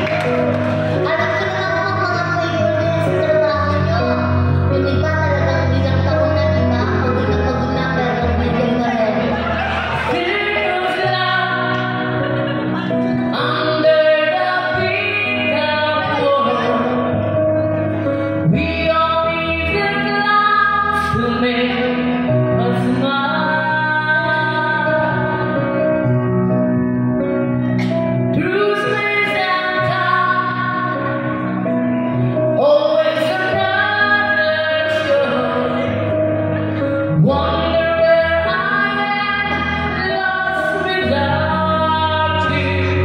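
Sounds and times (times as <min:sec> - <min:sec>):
person singing into microphone: 0:00.0 - 0:17.5, 0:27.8 - 0:43.0
backing music: 0:00.0 - 0:43.0.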